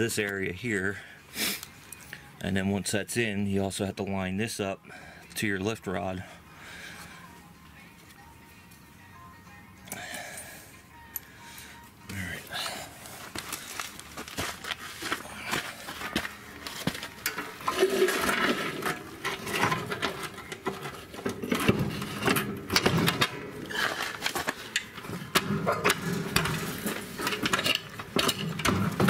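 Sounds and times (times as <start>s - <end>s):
metal scraping: 15.8s - 29.0s
metal clanks and knocks: 16.8s - 29.0s.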